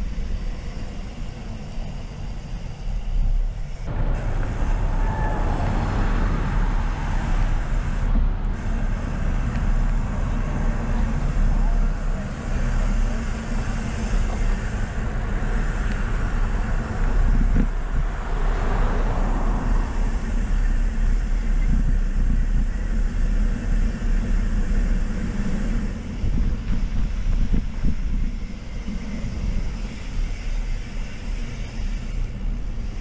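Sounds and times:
bike tyres rolling: 0:00.0 - 0:33.0
wind buffeting microphone: 0:13.7 - 0:33.0.

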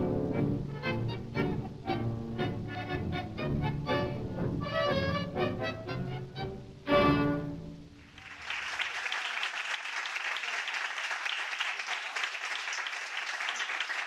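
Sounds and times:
audience applauding: 0:08.0 - 0:14.0.

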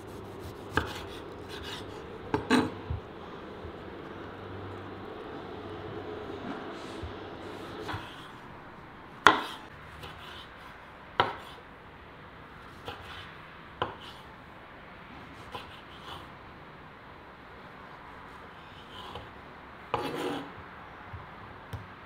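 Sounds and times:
knife chopping on cutting board: 0:00.1 - 0:03.0, 0:09.2 - 0:10.4, 0:11.2 - 0:11.6.

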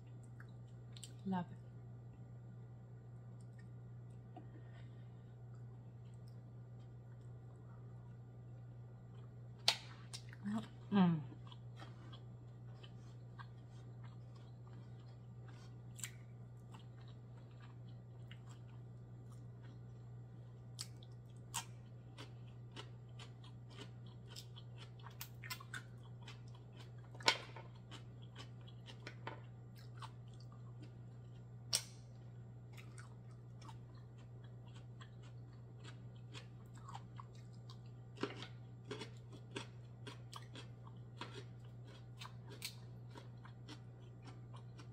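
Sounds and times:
quiet chewing: 0:00.0 - 0:01.2, 0:03.3 - 0:44.9
steady low hum: 0:00.0 - 0:44.9.

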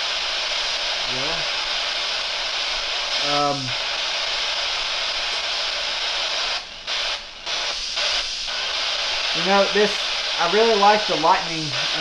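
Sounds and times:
heavy rain on a roof: 0:01.0 - 0:01.4, 0:09.3 - 0:12.0.

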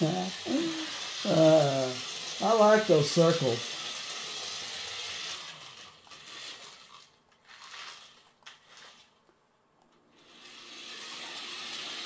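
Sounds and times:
toy electric motor whirring: 0:00.0 - 0:09.2, 0:10.1 - 0:12.0.

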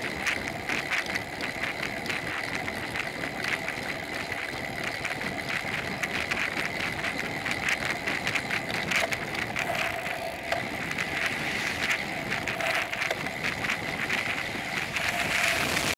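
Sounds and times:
bicycle tyre noise: 0:00.0 - 0:15.9
bike rattles and clicks: 0:00.0 - 0:15.9.

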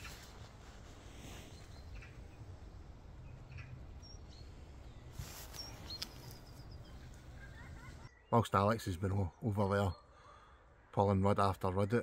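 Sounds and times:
high bird chirps: 0:03.2 - 0:10.4
bird trill: 0:03.2 - 0:10.6.

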